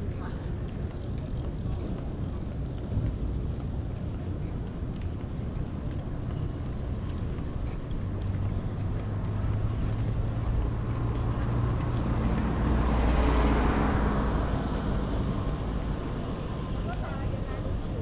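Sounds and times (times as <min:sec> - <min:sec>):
vehicle passing by: 0:09.1 - 0:16.9.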